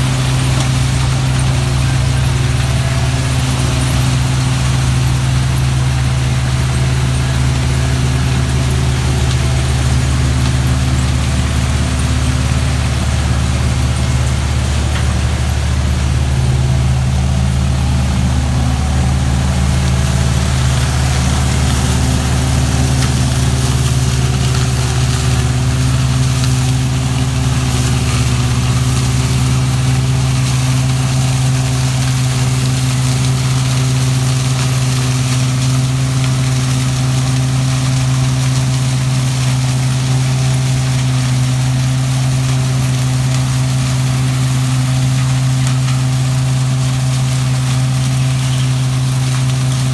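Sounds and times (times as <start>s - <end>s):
machine engines humming: 0.0s - 34.4s.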